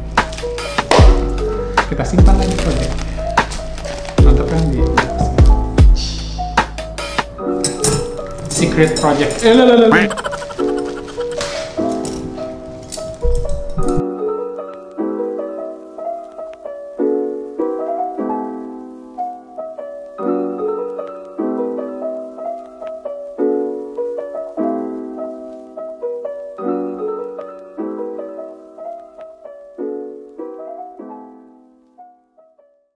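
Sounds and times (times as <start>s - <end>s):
gentle piano tune: 7.2s - 32.8s.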